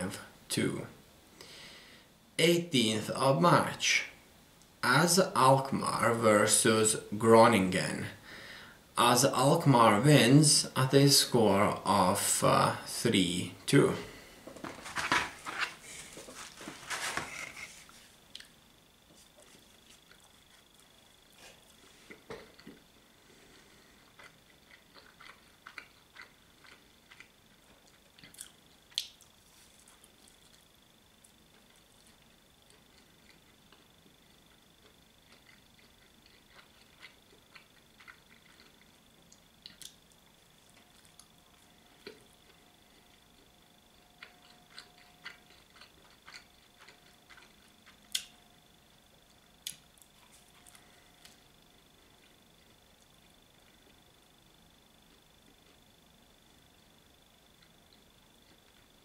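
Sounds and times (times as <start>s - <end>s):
person chewing: 19.1s - 48.3s, 49.6s - 51.4s
mouth clicks while chewing: 27.9s - 29.3s.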